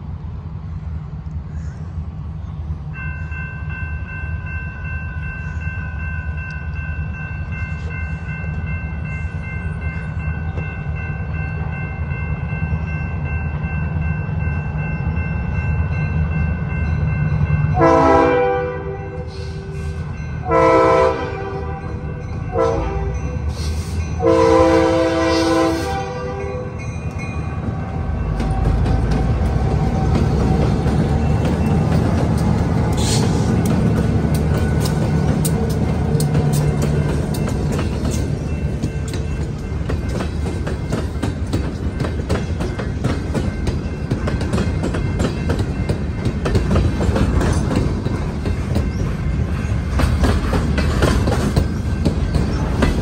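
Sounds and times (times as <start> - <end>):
locomotive engines rumbling: 0.0 - 53.0
crossing bell ringing: 2.9 - 53.0
train horn blasts: 17.7 - 26.9.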